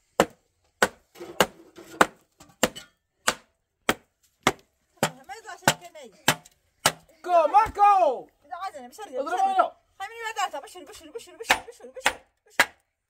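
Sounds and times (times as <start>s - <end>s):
hatchet chopping wood: 0.2s - 7.1s, 11.5s - 12.8s.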